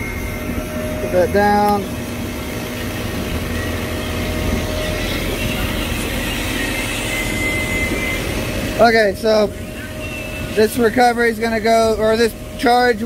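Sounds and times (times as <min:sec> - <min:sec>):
refrigerant recovery machine humming: 0:00.0 - 0:13.0.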